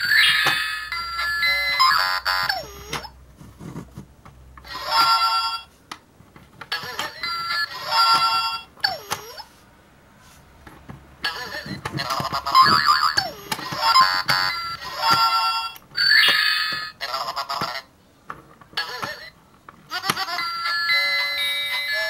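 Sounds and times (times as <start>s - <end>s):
electronic toy beeping tune: 0.0s - 3.1s, 7.1s - 9.4s, 12.6s - 17.0s, 20.2s - 22.0s.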